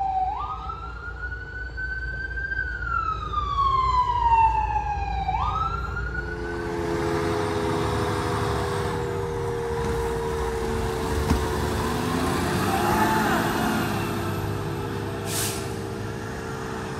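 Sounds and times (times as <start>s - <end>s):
siren wail: 0.0s - 15.2s
diesel engine running: 6.5s - 16.9s.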